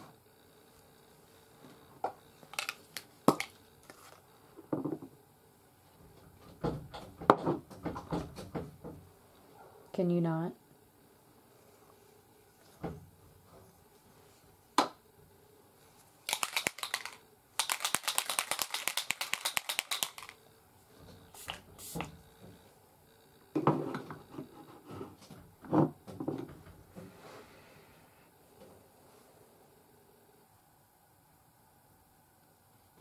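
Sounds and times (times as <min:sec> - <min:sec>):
makeup items clicking: 0:02.5 - 0:03.6, 0:16.3 - 0:20.4.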